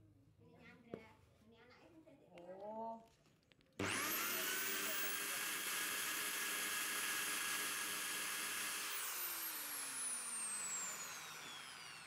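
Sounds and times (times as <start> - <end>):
grinder winding down whine: 3.8 - 12.0
rotary grinder grinding metal: 3.8 - 12.0.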